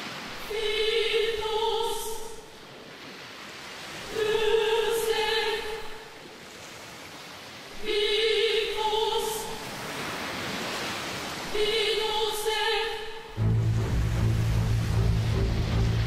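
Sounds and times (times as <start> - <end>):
surf-like noise: 0.0 - 16.0
choir-like chord: 12.8 - 16.0.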